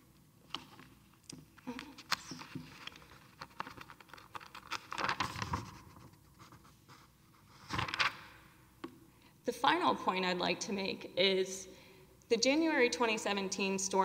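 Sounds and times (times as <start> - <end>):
papers rustling: 0.5 - 8.4.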